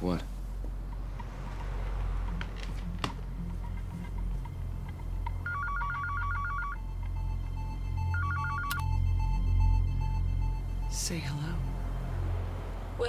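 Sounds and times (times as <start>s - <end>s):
telephone ringing with warbling trill: 5.4s - 10.9s.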